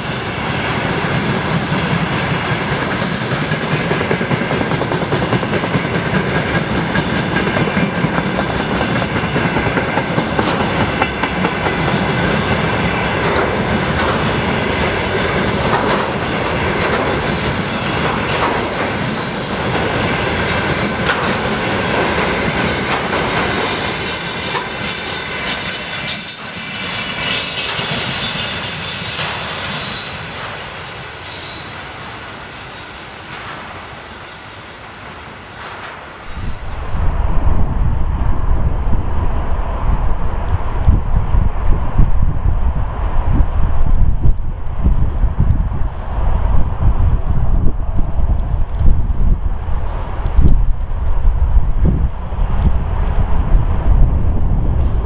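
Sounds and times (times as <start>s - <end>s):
high wheel squeals: 0.0s - 3.9s, 13.7s - 35.6s, 36.2s - 37.1s
train wheels rumbling on rail: 0.0s - 55.0s
wheels clacking over rail joints: 1.9s - 31.8s.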